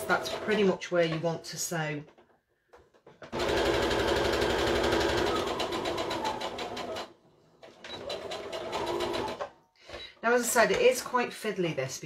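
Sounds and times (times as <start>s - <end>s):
sewing machine stitching: 0.0s - 0.8s, 3.2s - 9.6s.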